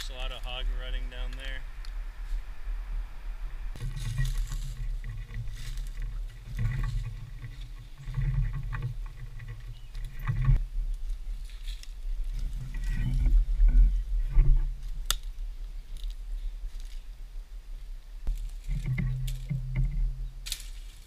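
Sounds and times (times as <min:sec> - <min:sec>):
footsteps crunching through dry leaves: 0:03.8 - 0:06.2, 0:11.0 - 0:12.6.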